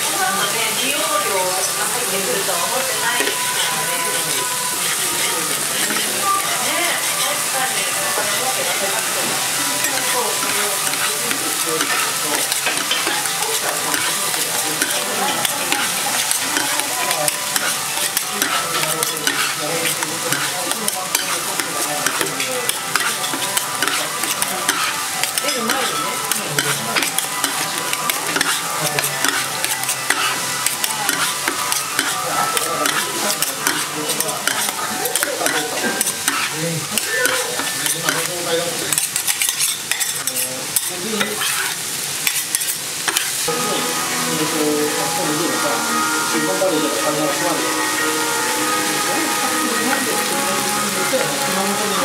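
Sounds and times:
batter sizzling on a griddle: 0.0s - 52.0s
metal spatulas scraping griddle: 3.2s - 7.5s, 9.8s - 43.3s.

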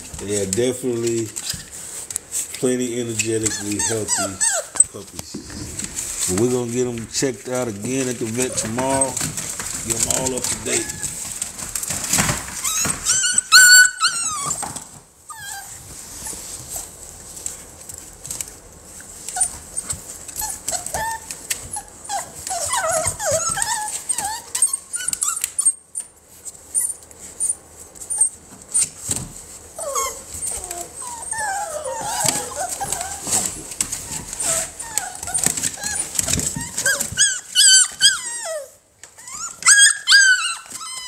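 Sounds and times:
puppies whining and yelping: 3.0s - 5.0s, 10.0s - 16.9s, 19.2s - 41.0s.

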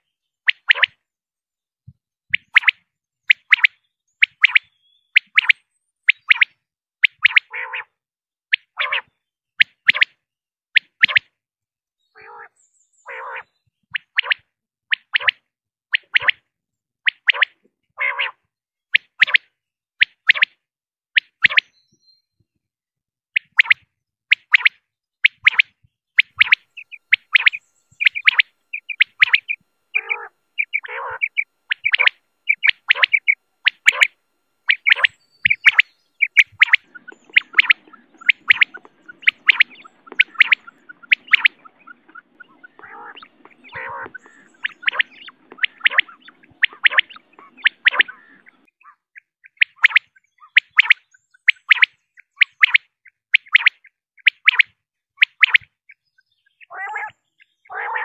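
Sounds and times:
quail calling: 2.4s - 7.9s, 8.5s - 10.2s, 12.2s - 14.4s, 17.2s - 18.4s, 25.4s - 51.0s, 56.4s - 58.0s.

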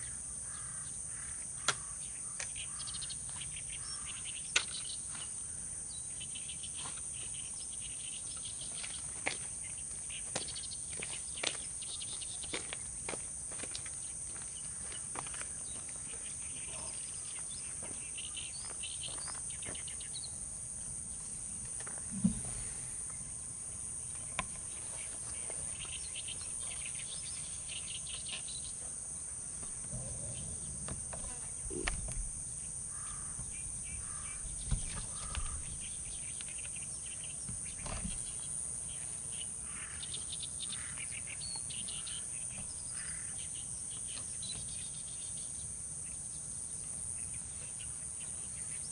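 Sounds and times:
insect trilling: 0.0s - 44.3s
bird chirps: 29.6s - 44.9s.

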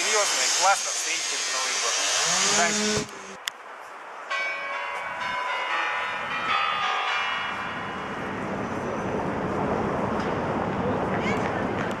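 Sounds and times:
outdoor noise: 0.0s - 12.0s
clock bells ringing: 4.3s - 8.3s.

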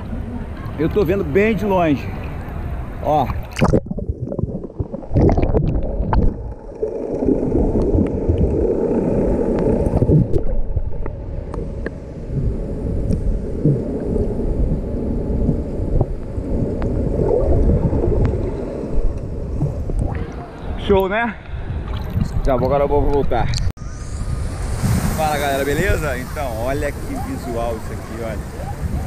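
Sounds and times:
muffled underwater rumble and gurgling: 2.4s - 20.8s
loud splash: 24.1s - 28.2s.

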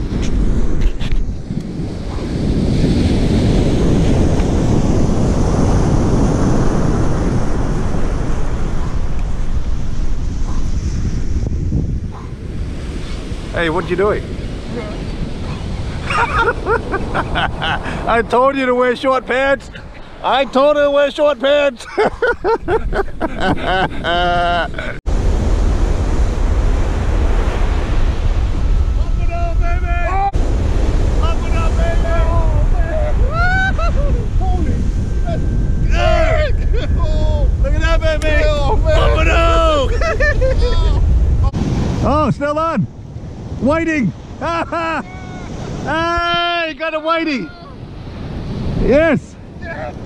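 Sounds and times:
wind on microphone: 0.0s - 46.5s
ocean surf breaking: 0.0s - 50.0s
voices: 13.5s - 25.0s, 31.2s - 43.0s, 43.6s - 47.9s, 48.8s - 50.0s.

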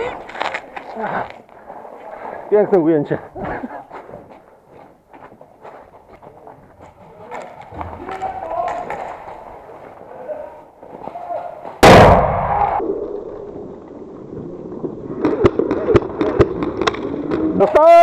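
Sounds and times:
loud explosive bang: 11.8s - 12.8s.

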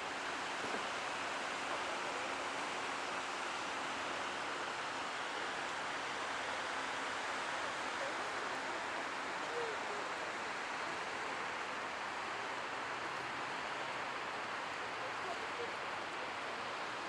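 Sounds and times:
stream flowing over rocks: 0.0s - 17.0s.

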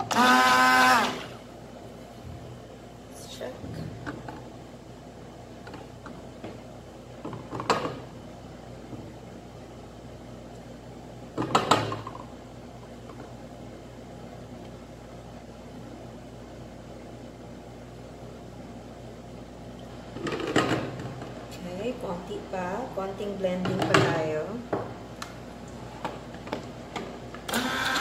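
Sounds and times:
stick blender motor hum: 0.0s - 1.4s, 27.5s - 28.0s.

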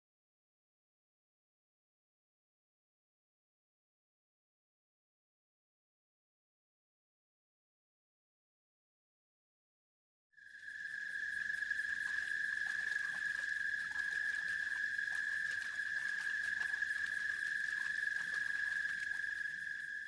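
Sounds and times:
crickets trilling: 10.4s - 20.0s.

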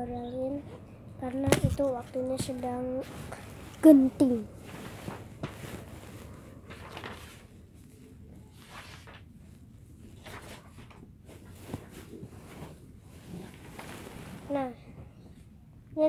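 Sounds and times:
paper sheets rustling: 1.5s - 9.4s, 10.1s - 14.5s.

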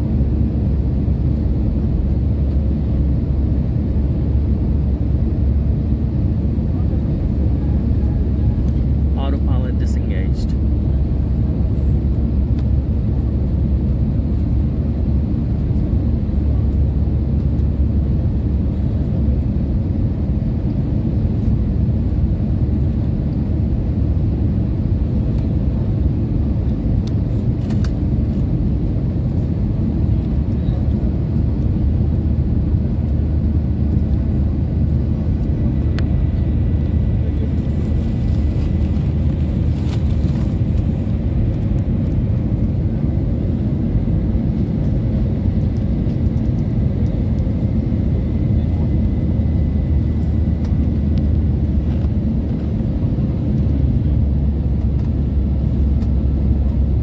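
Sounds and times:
aircraft cabin roar: 0.0s - 57.0s.

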